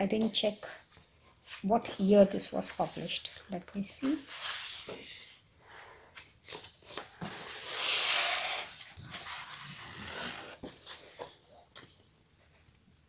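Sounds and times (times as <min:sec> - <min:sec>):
paper rustling and sliding: 0:06.4 - 0:11.9.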